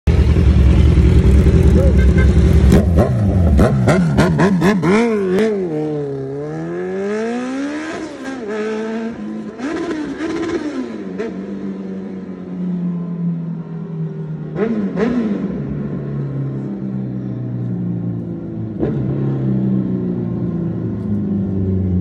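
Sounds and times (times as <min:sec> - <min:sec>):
motorbike engine revving: 0:00.1 - 0:11.6.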